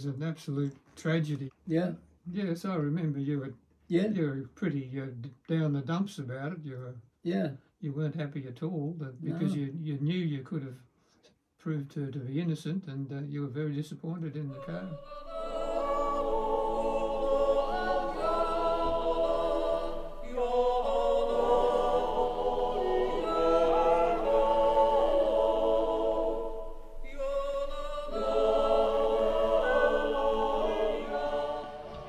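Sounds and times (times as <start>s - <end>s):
choir singing slow phrases: 14.4s - 32.0s.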